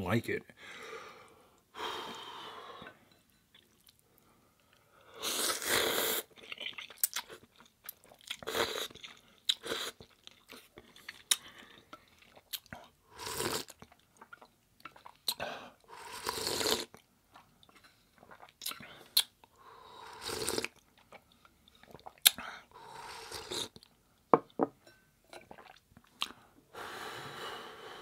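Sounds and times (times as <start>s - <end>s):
slurping noodles: 5.2s - 7.0s, 13.2s - 13.8s, 16.0s - 16.9s, 20.0s - 20.8s, 21.8s - 23.8s
wet chewing and mouth clicks: 6.3s - 15.4s, 16.7s - 19.6s, 20.4s - 22.4s, 25.3s - 26.4s.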